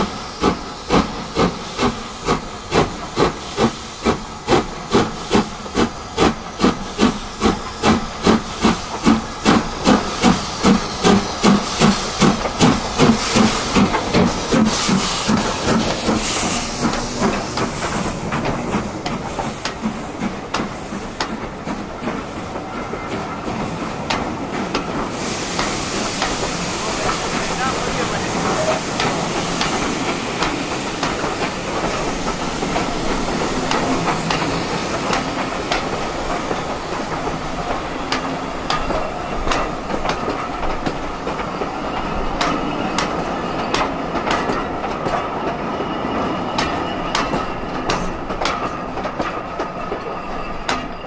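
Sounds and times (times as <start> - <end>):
steam hissing: 0.0 - 50.9
steam locomotive chuffing: 0.0 - 51.0.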